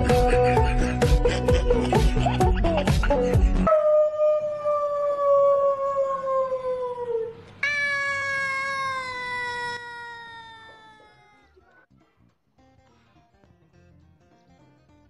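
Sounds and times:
cat meowing: 7.6s - 11.5s.

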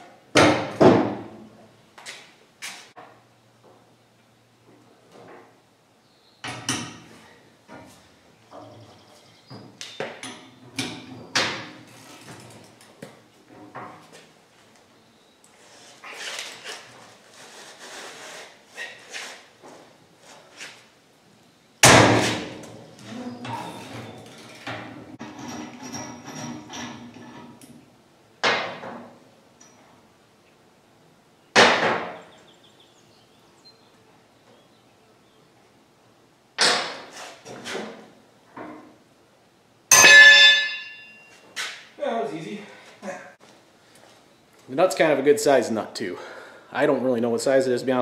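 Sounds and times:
loud metal clang: 21.8s - 22.6s, 39.9s - 41.3s.

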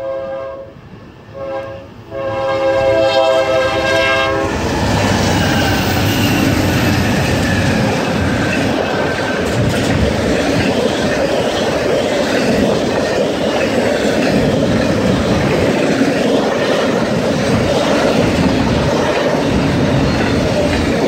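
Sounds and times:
locomotive air horn blasts: 0.0s - 4.6s
train rolling past: 0.0s - 21.0s
wheels clacking on rail joints: 4.7s - 21.0s.

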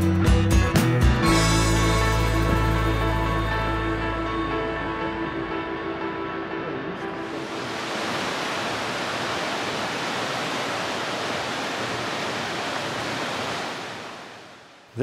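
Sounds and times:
rushing water: 7.0s - 15.0s.

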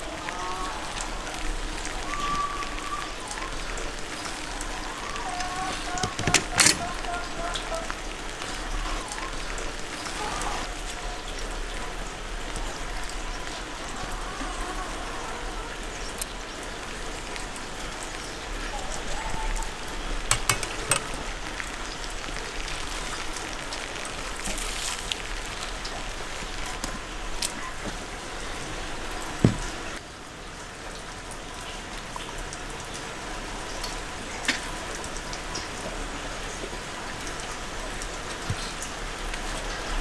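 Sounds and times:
light rain pattering on paving: 0.0s - 20.3s, 20.9s - 40.0s
metallic clinks of skewers: 20.3s - 21.1s.

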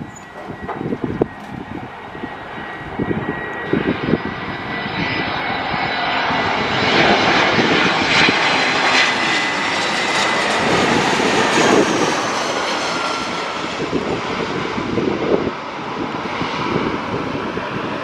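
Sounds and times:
jet airliner passing overhead: 0.0s - 18.0s.

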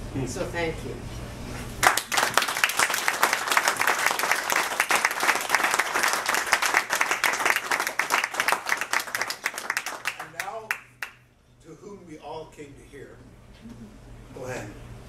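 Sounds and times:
audience applauding: 1.8s - 11.2s.

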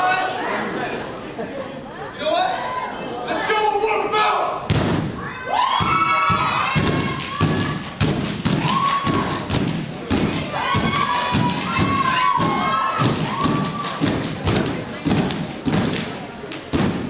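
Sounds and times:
heavy rhythmic thumps: 5.8s - 17.0s.

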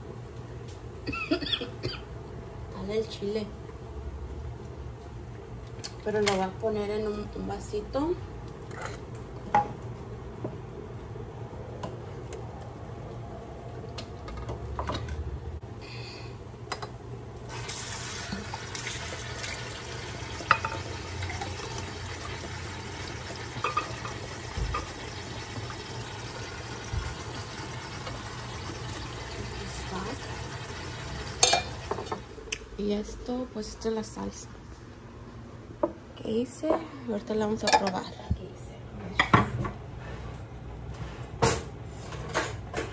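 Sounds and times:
water running into a sink: 17.5s - 32.2s.

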